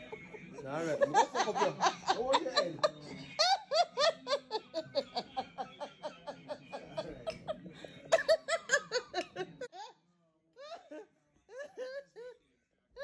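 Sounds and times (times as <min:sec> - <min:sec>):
person laughing heartily: 0:00.0 - 0:09.7.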